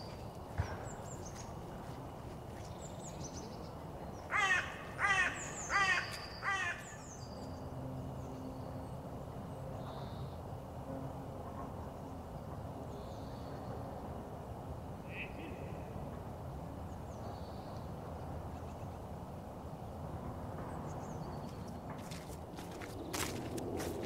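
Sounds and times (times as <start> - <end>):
small birds chirping: 0.0 - 8.8, 20.9 - 24.0
crow cawing harshly: 4.3 - 7.0.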